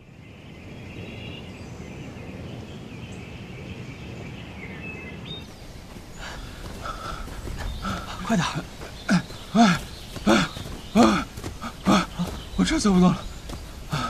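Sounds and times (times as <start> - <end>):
faint bird calls: 0.6 - 14.0
rustling in brush: 5.4 - 14.0.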